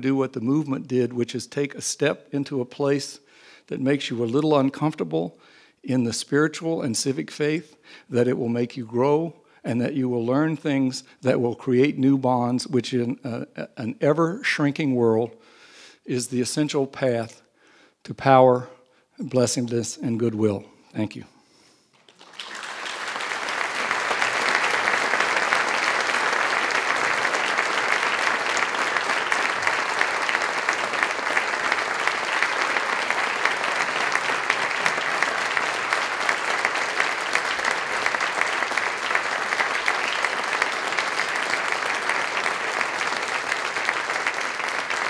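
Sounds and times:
audience applauding: 22.0 - 45.0.

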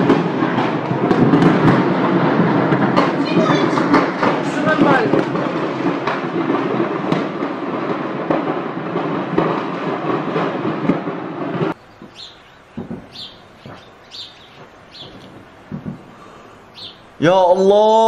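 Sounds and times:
low thuds: 0.0 - 16.4
sharp bangs: 0.0 - 17.2
fire burning: 0.0 - 18.0
bird chirping: 11.8 - 17.2.

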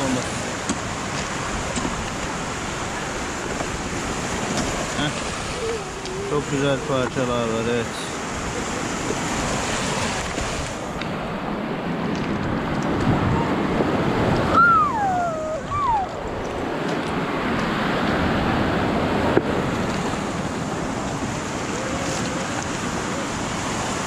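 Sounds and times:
sea surf washing onto shore: 0.0 - 24.0
high falling call: 14.5 - 16.4.

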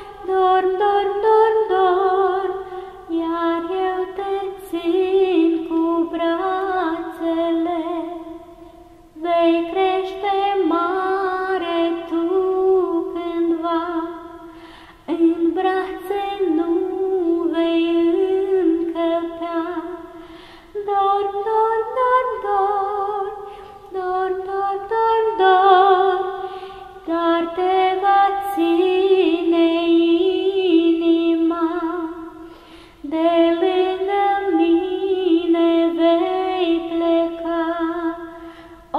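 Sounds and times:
woman singing a lullaby: 0.0 - 38.9
breaths between phrases: 14.5 - 15.0, 20.2 - 20.7, 32.4 - 33.0, 38.3 - 38.9.

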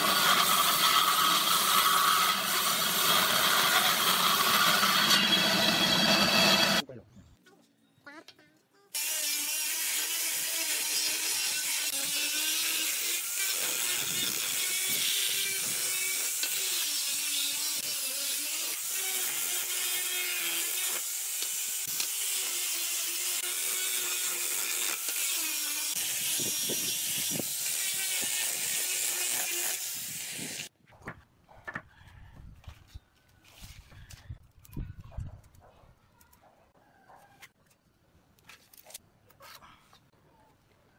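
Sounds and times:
angle grinder sanding wood: 0.0 - 6.8, 9.0 - 30.7.

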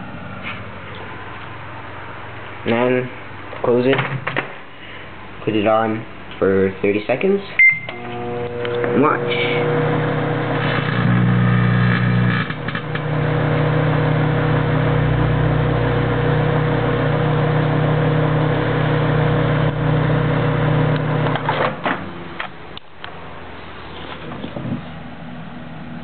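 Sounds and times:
microwave oven humming: 7.6 - 23.5.

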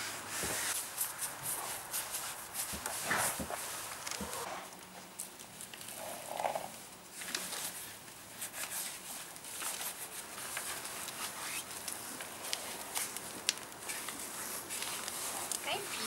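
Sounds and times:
padded boots rustling and crackling: 0.0 - 16.0
straw crunching: 0.8 - 16.0.

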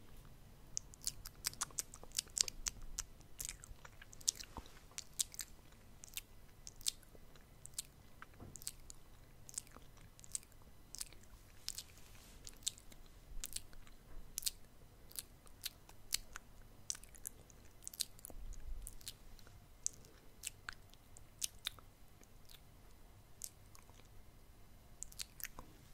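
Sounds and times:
lip smacks: 0.8 - 19.2, 23.4 - 24.2, 25.0 - 25.7
tongue clicks: 25.0 - 25.6.

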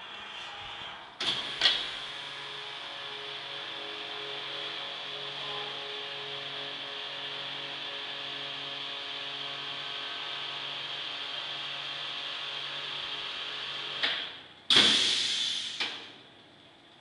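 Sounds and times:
loud rush of air: 0.0 - 2.2, 14.7 - 16.0.

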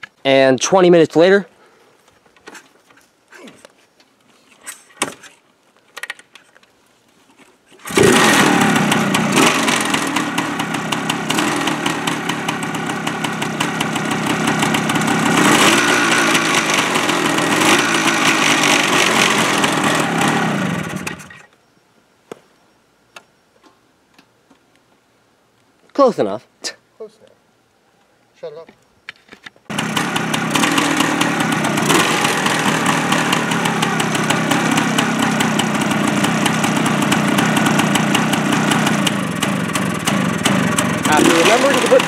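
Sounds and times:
two-stroke engine revving: 7.8 - 21.4, 29.7 - 42.0.

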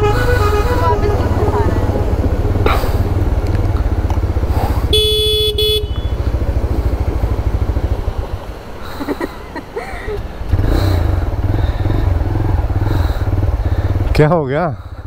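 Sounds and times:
horn beeps: 0.0 - 2.8, 4.9 - 6.2
motorcycle engine throbbing: 0.0 - 8.8, 10.2 - 15.0.

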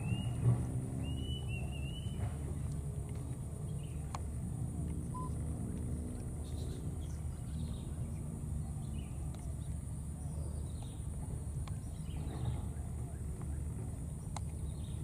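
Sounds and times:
steady low rumble: 0.0 - 15.0
faint high chirps: 5.1 - 5.4.

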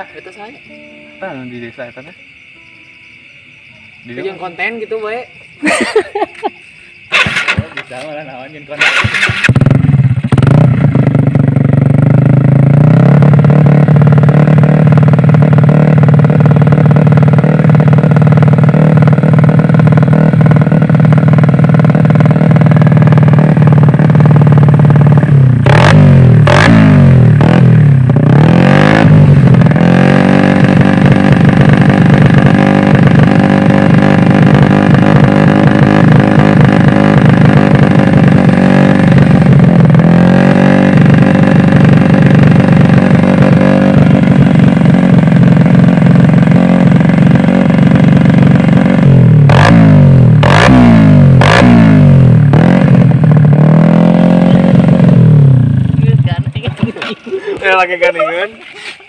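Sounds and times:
motorcycle engine idling and revving: 0.0 - 58.6.

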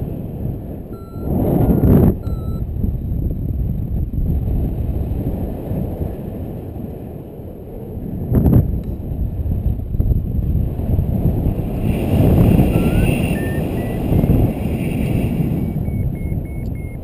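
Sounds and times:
wind rushing over microphone: 0.0 - 17.0
variometer beeping: 0.9 - 2.7, 12.6 - 14.4, 15.5 - 17.0.

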